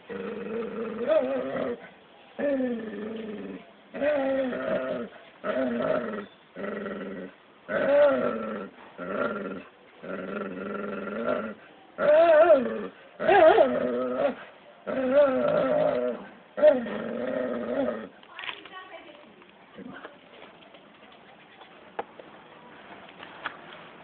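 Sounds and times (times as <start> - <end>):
dog and cat growling and yowling: 6.8 - 18.1.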